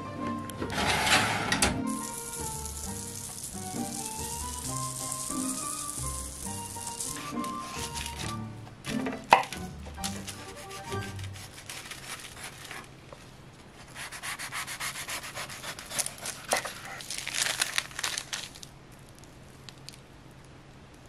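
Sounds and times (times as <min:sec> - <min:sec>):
knife sawing through crisp crust: 0:10.1 - 0:12.9, 0:13.8 - 0:17.3.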